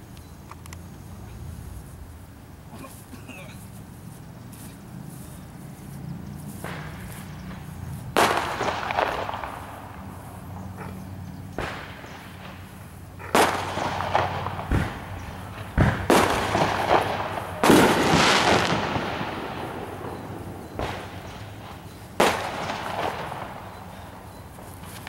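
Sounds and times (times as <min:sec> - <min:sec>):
noisy rustle: 0:00.0 - 0:25.0
sharp knocks and bangs: 0:13.4 - 0:19.5.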